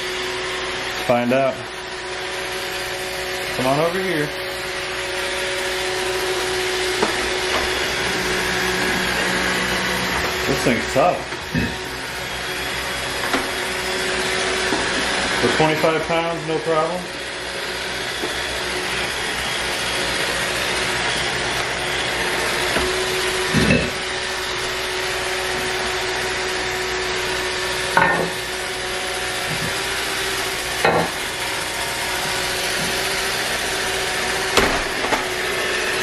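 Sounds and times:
robot vacuum whirring: 5.5 - 36.0.

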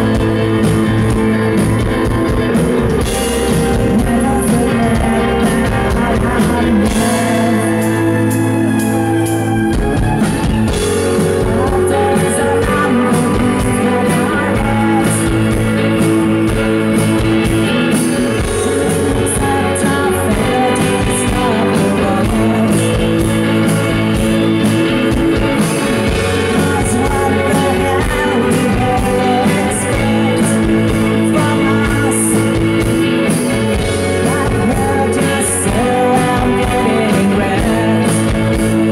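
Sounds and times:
keyboard and bass drone: 0.0 - 38.9
live rock band playing: 0.0 - 38.9
women singing: 3.8 - 8.0, 11.4 - 15.6, 18.5 - 23.1, 26.4 - 32.5, 34.1 - 38.9.

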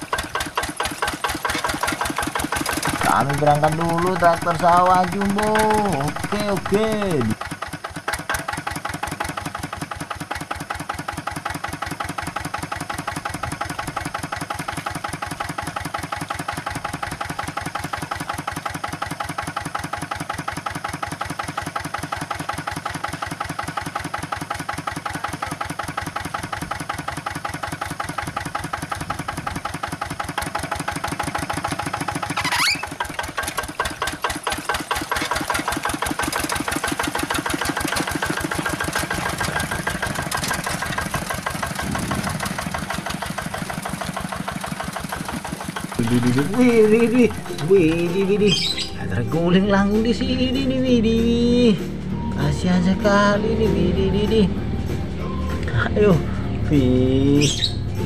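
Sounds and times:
small engine chugging: 0.0 - 53.2, 55.7 - 58.0
rising whine: 46.0 - 58.0.

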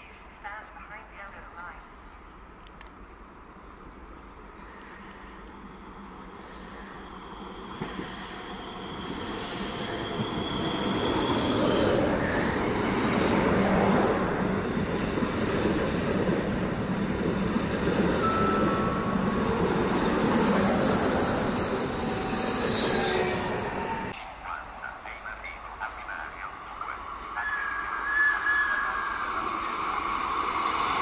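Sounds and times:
train wheels on rail: 3.6 - 24.2.

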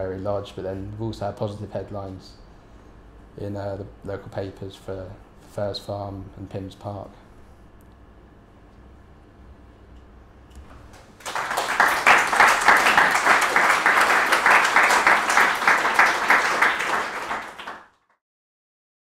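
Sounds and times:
audience applauding: 10.9 - 18.2.

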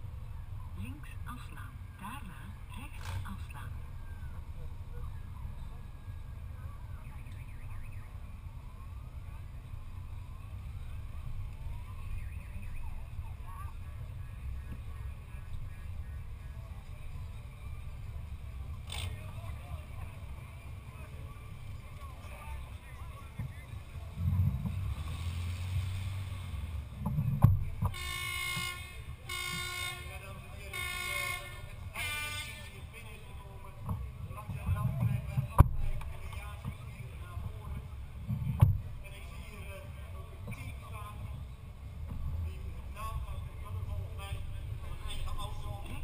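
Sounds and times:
car driving rumble: 0.0 - 46.0
car horn: 27.9 - 32.8
siren wailing: 28.0 - 31.7.

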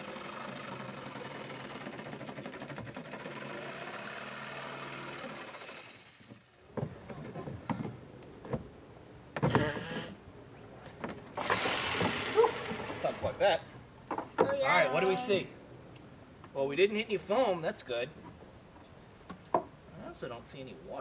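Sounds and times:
electric jigsaw cutting: 0.0 - 6.3
burst of noise: 11.4 - 13.6.

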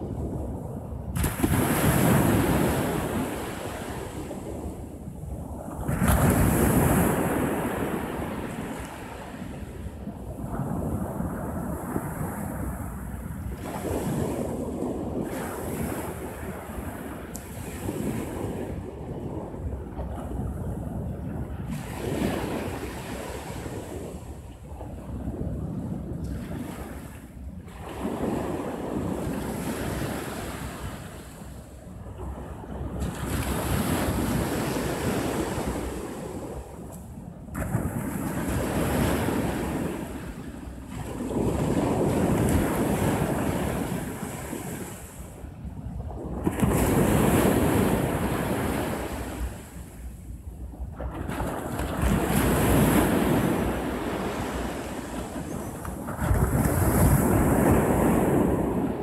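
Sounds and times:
waves breaking on sandy beach: 0.0 - 59.0
wind rumble on microphone: 0.0 - 59.0.

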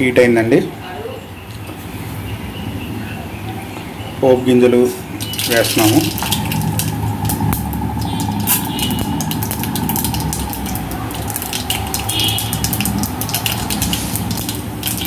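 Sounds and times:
crackling pops of spluttering seeds: 5.2 - 15.0
seeds sizzling in hot oil: 5.2 - 15.0.

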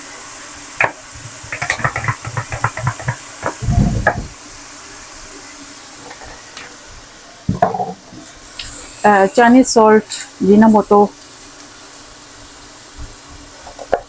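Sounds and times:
vegetables sizzling in a wok: 0.0 - 14.0
sauce bottle knocking: 1.5 - 4.3.

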